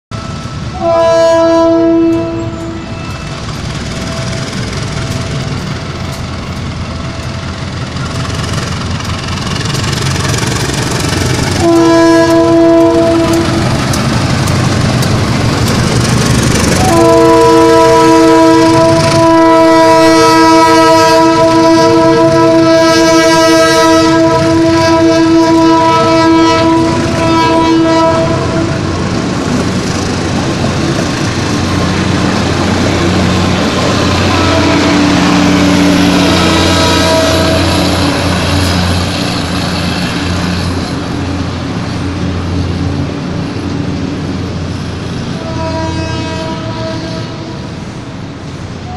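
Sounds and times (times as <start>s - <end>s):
train wheels rumbling on rails: 0.1s - 48.9s
locomotive horn blasts: 0.2s - 3.4s, 11.5s - 13.8s, 16.6s - 29.0s, 34.0s - 38.7s, 45.3s - 47.8s
diesel engine: 2.2s - 20.1s, 21.2s - 45.6s.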